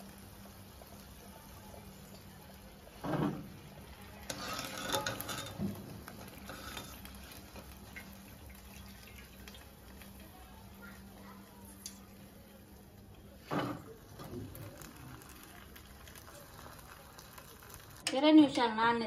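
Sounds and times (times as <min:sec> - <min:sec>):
skimmer scraping metal pan: 0:04.3 - 0:07.3.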